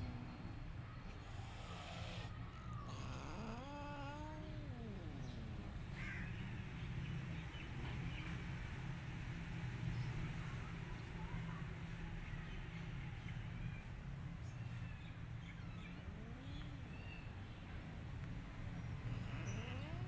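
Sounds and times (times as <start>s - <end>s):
cat meowing: 2.6s - 6.4s, 16.0s - 17.3s, 19.2s - 20.0s.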